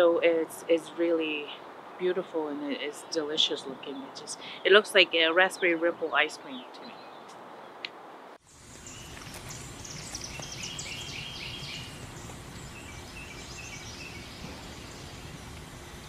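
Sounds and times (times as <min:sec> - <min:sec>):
songbirds chirping and trilling: 0:00.0 - 0:16.0
steady low rumble: 0:08.5 - 0:16.0.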